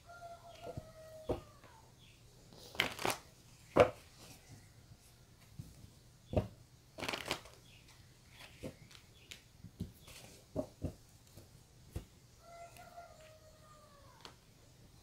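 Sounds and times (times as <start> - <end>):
cards shuffling: 2.7 - 3.3, 7.0 - 7.6.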